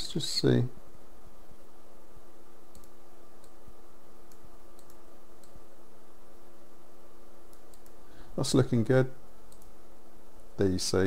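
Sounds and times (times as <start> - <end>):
steady low hum: 0.0 - 11.0
computer mouse clicks: 2.7 - 3.6, 4.2 - 5.6, 7.5 - 8.0, 9.5 - 9.8.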